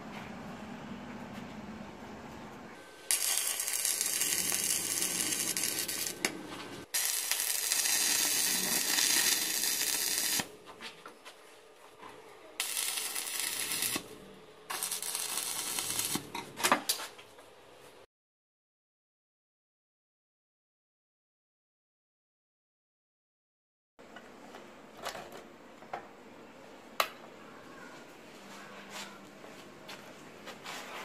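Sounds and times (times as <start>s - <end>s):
cut-off disc cutting metal rod: 3.1s - 6.3s.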